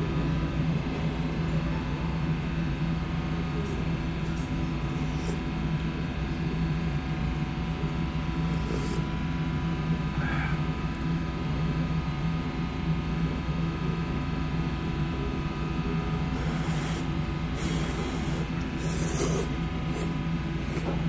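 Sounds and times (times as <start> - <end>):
low machine hum: 0.0 - 21.0
person slurping noodles: 4.8 - 5.6, 8.5 - 9.2, 16.2 - 21.0
sipping soup from a spoon: 16.3 - 20.8.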